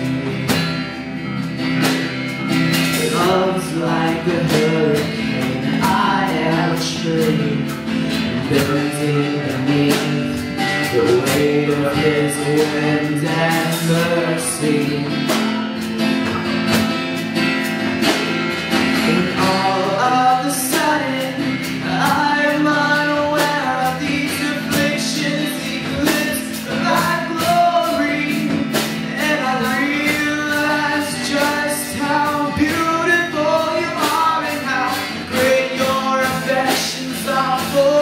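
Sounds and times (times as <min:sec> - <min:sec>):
drum kit beat: 0:00.0 - 0:38.0
live band playing: 0:00.0 - 0:38.0
voices singing: 0:02.6 - 0:16.9, 0:18.6 - 0:38.0.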